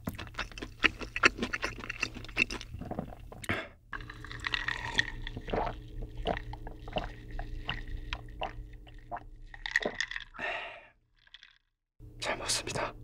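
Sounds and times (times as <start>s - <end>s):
person gulping a drink: 0.0s - 11.6s
ice cubes clinking on glass: 9.6s - 10.4s.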